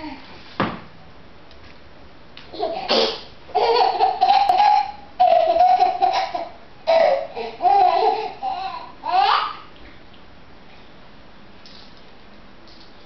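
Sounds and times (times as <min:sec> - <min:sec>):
baby laughing: 0:02.5 - 0:09.7.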